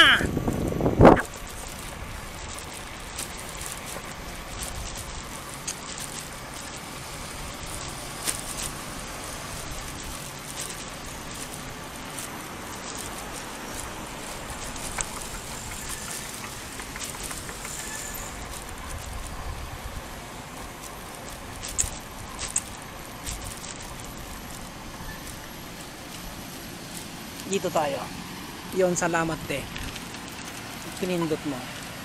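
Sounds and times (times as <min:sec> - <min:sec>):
road traffic passing: 0:00.0 - 0:32.0.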